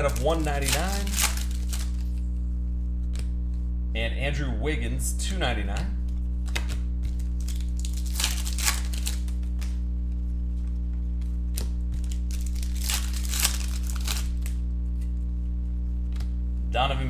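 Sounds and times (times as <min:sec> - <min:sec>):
foil wrapper tearing and crinkling: 0:00.0 - 0:02.2, 0:07.0 - 0:09.7, 0:11.6 - 0:14.6
steady low hum: 0:00.0 - 0:17.0.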